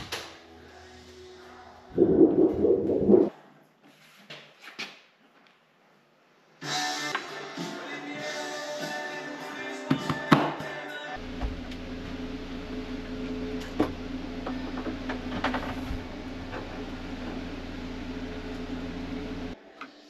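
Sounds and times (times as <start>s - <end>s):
machine hum: 1.9s - 3.3s, 11.2s - 19.6s.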